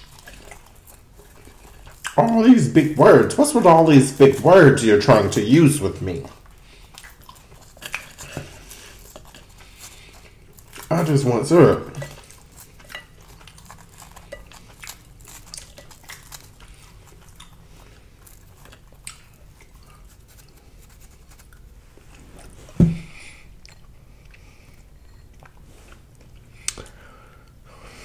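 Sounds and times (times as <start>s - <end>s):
batter crumbs crackling: 0.0s - 23.9s
dull thump: 22.8s - 23.1s.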